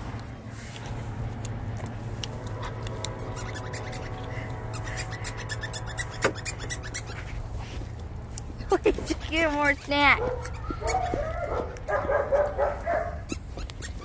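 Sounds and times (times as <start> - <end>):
dog whining faintly: 10.2 - 11.7.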